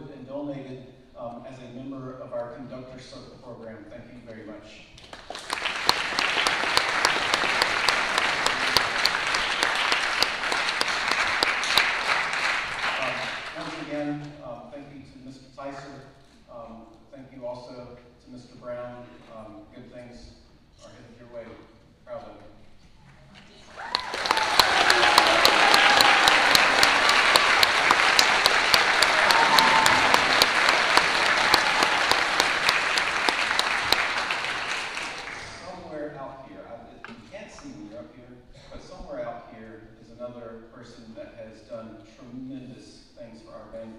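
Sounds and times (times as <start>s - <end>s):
audience applauding: 5.0s - 13.9s, 23.6s - 35.9s
sharp close claps: 5.0s - 13.9s, 23.8s - 35.8s.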